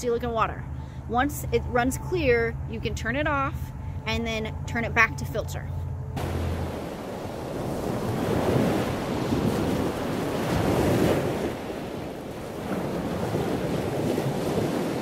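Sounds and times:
wind buffeting microphone: 0:06.2 - 0:15.0.

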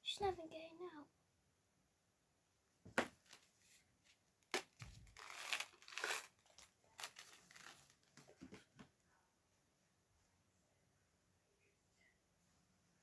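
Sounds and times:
plastic wrapper crinkling: 0:04.4 - 0:08.2.

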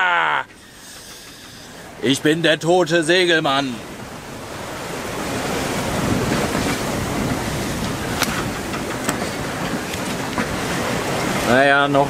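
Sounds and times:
sea waves rushing: 0:00.0 - 0:12.0
wind buffeting microphone: 0:01.0 - 0:12.0.

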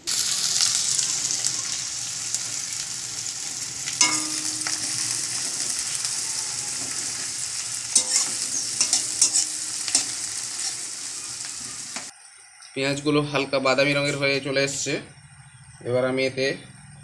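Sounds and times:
onions sizzling in hot oil: 0:00.0 - 0:12.6
steel spatula scraping pan: 0:07.9 - 0:11.0.

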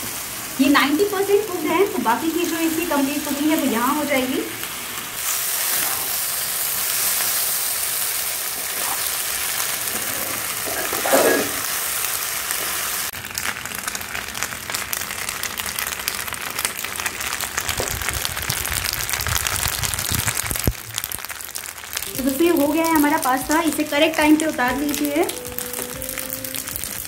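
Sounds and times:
sauce sizzling and popping in pan: 0:00.0 - 0:27.0.

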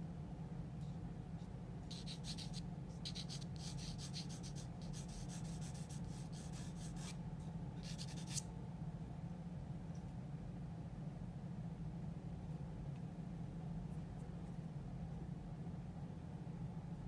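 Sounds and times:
pencil scratching on paper: 0:01.9 - 0:07.2, 0:07.8 - 0:08.4.

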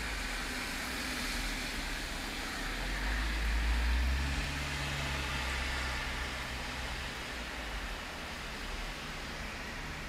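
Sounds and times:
car driving by on wet road: 0:00.0 - 0:07.6
steady rain falling: 0:00.0 - 0:10.0.

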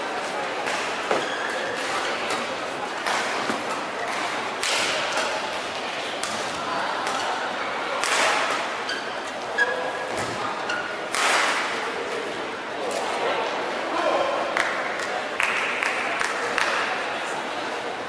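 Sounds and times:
crowd murmur: 0:00.0 - 0:18.0
shoe squeaks on court floor: 0:01.1 - 0:01.7, 0:08.9 - 0:10.1.

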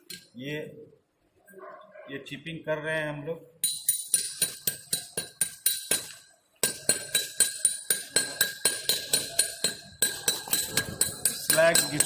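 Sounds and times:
hammer tapping metal slag: 0:03.6 - 0:12.0.

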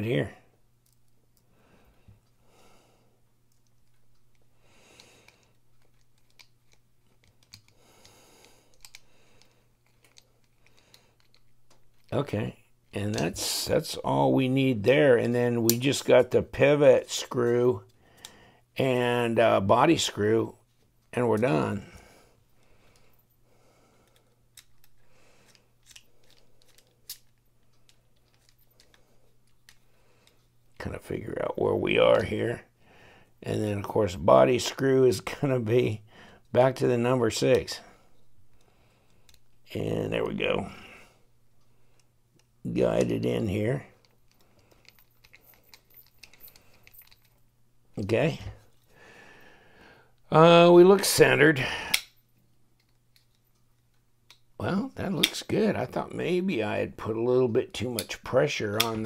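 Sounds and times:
soft handling noise: 0:05.2 - 0:07.8, 0:08.6 - 0:18.3, 0:24.0 - 0:32.6, 0:34.5 - 0:49.0
screwdriver metallic clicks and scrapes: 0:24.1 - 0:30.4, 0:44.3 - 0:47.4.

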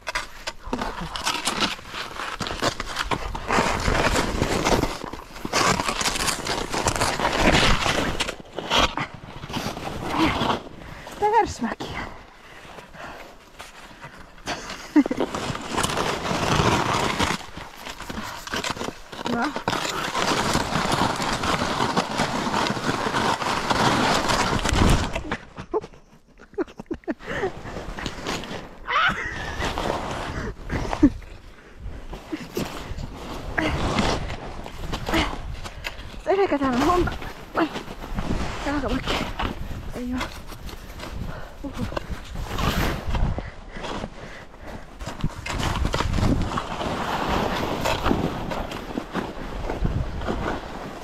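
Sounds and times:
twigs crunching and crackling: 0:00.0 - 0:08.9, 0:14.9 - 0:25.6
skis scraping through snow: 0:01.2 - 0:11.4, 0:13.6 - 0:25.1, 0:29.4 - 0:31.3, 0:32.0 - 0:41.2, 0:42.0 - 0:51.0.

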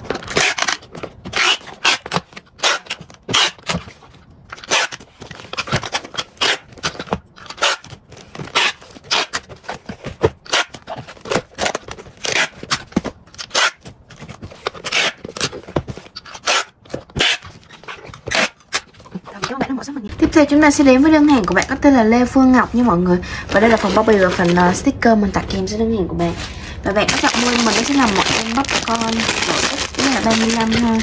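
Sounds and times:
packing tape pulled off dispenser: 0:00.0 - 0:03.9, 0:04.5 - 0:09.6, 0:10.4 - 0:15.6, 0:16.2 - 0:18.9, 0:27.1 - 0:31.0.

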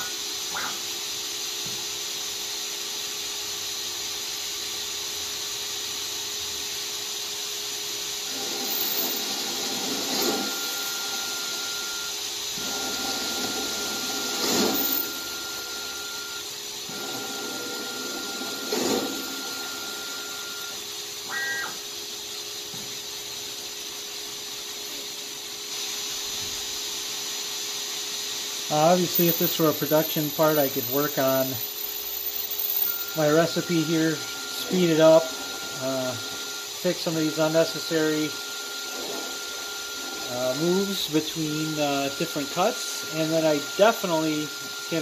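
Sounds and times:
lathe spindle humming: 0:08.2 - 0:21.8, 0:28.8 - 0:45.0
metal cutting noise: 0:08.3 - 0:22.0, 0:28.7 - 0:45.0
high whine: 0:08.6 - 0:21.9, 0:28.7 - 0:45.0.

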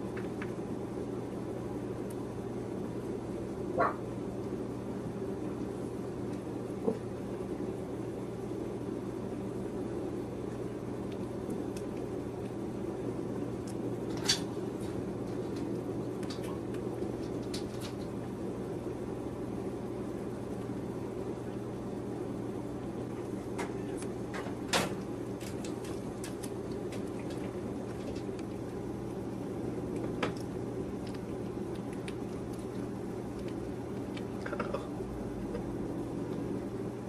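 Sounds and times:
steady low hum: 0:00.0 - 0:37.0
soft wet clicks and smacks: 0:29.9 - 0:34.6.

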